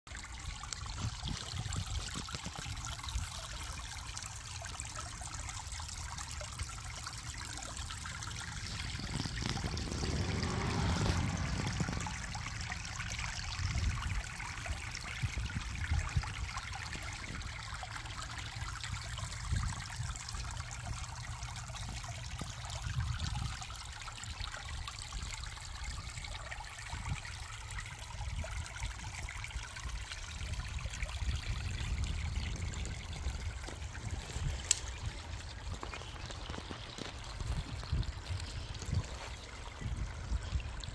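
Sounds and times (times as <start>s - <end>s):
creek trickling: 0.1s - 40.9s
low rumble: 7.9s - 14.7s.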